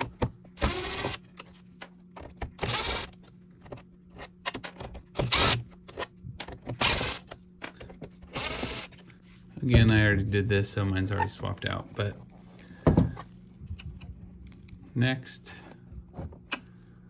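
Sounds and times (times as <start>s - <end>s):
power drill running: 0.6s - 1.3s, 2.6s - 3.1s, 5.2s - 5.6s, 6.8s - 7.2s, 8.3s - 9.0s.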